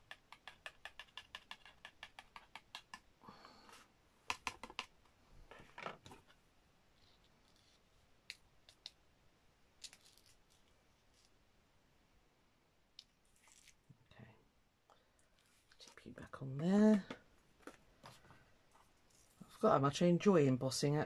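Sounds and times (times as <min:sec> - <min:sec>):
paper tapping: 0:04.3 - 0:04.9.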